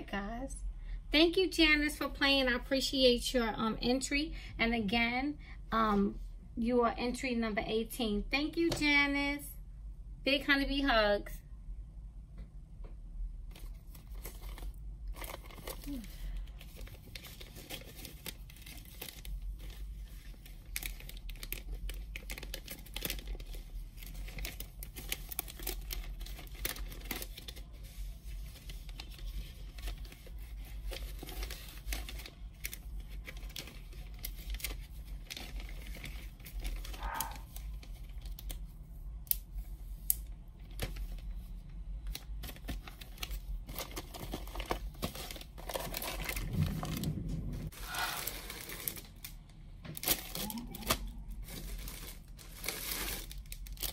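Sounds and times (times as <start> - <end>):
plastic bags crinkling: 13.5 - 38.7, 40.5 - 53.9.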